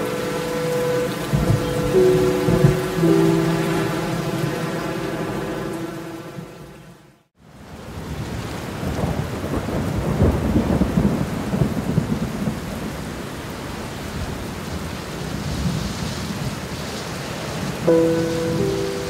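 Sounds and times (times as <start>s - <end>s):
thunder rumbling: 0.0s - 6.8s
heavy rain pouring: 0.0s - 19.0s.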